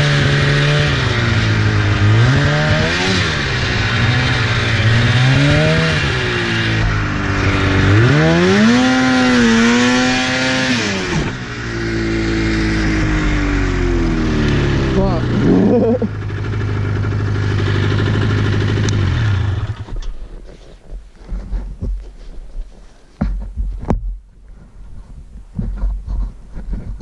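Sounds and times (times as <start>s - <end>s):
snowmobile engine revving: 0.0s - 20.1s.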